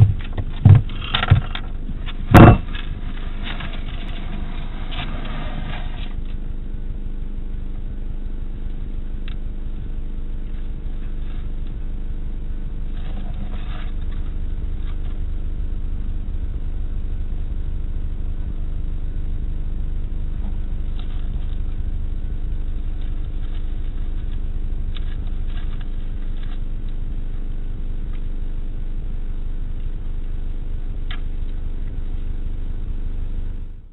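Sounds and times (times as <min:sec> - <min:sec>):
faint clicks and rustles: 0:00.0 - 0:06.5, 0:12.7 - 0:15.4, 0:20.3 - 0:27.4
low electrical hum: 0:00.0 - 0:33.9.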